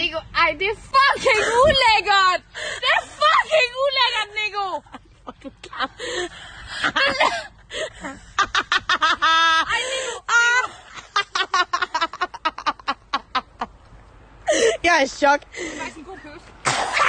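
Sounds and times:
women laughing and exclaiming: 0.9s - 13.8s
women giggling: 4.8s - 13.7s.

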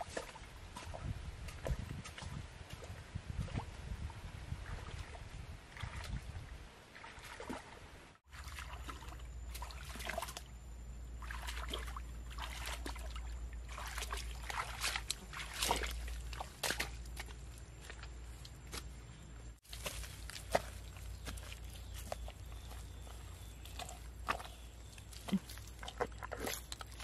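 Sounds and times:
feet splashing in shallow water: 0.0s - 3.9s, 4.5s - 10.5s, 11.1s - 18.9s, 19.6s - 27.0s
low steady rumble: 8.3s - 27.0s.

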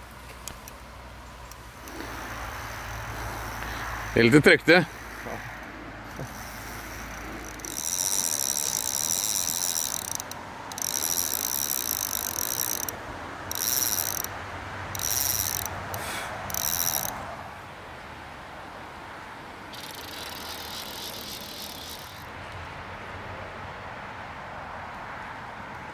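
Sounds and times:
fishing reel drag buzzing: 1.5s - 14.3s, 14.9s - 17.2s, 19.7s - 22.3s.

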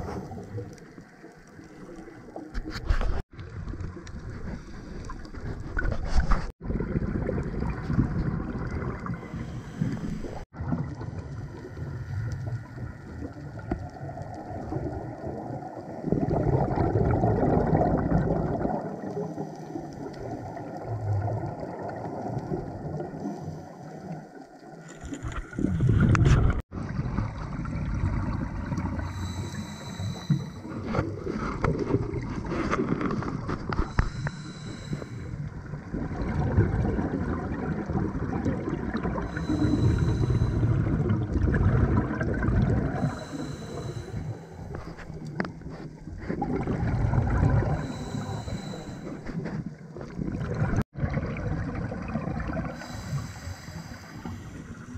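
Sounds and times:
exhaled bubbles underwater: 3.4s - 54.9s
regulator hissing inhale: 9.1s - 10.5s, 23.2s - 24.3s, 29.0s - 30.9s, 33.8s - 35.5s, 39.2s - 40.9s, 43.0s - 45.2s, 47.7s - 49.5s, 52.7s - 54.9s.

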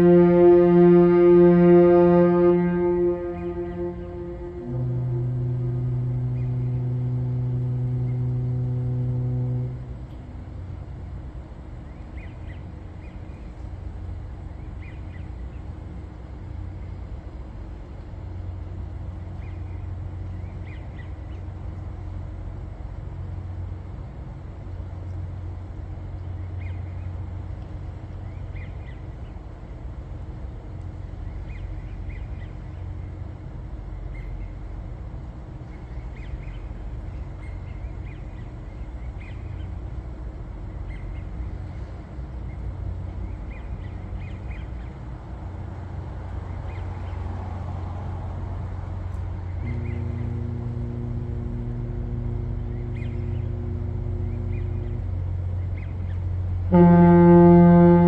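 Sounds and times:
low rumble: 0.0s - 58.0s.

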